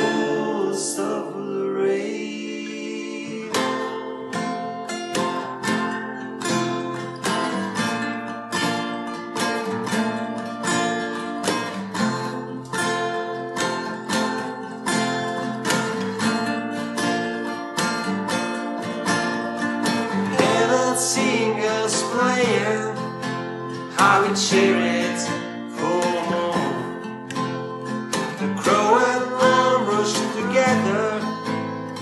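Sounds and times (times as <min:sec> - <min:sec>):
man singing: 0:00.0 - 0:04.6, 0:20.4 - 0:23.1, 0:23.9 - 0:27.1, 0:28.6 - 0:31.4
acoustic guitars strumming: 0:00.0 - 0:32.0.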